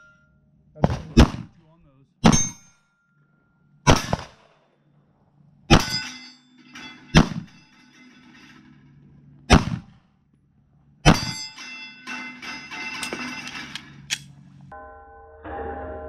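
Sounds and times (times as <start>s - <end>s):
steel plate ringing: 0.0s - 0.4s, 2.3s - 4.2s, 5.7s - 9.0s, 11.0s - 16.0s
pistol shots: 0.8s - 1.6s, 3.9s - 4.6s, 7.1s - 7.6s, 9.5s - 10.0s.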